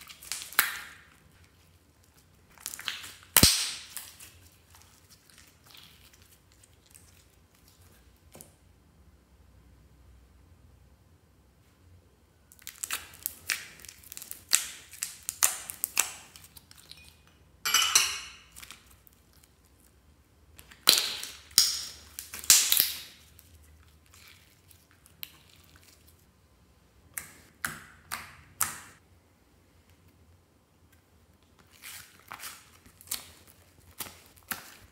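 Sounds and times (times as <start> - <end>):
slime crackling and popping: 0.0 - 7.8, 12.5 - 17.0, 20.6 - 26.2, 31.5 - 34.9.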